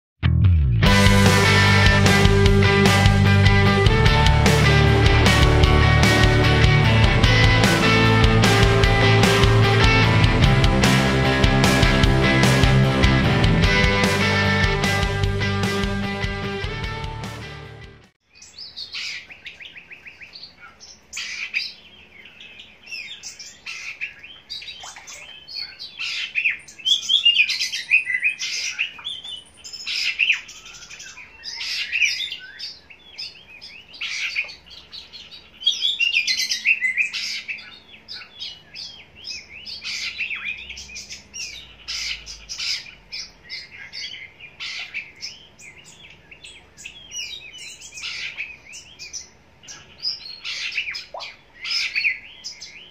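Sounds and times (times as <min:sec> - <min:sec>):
bird singing whistled phrases: 0:23.0 - 0:34.6.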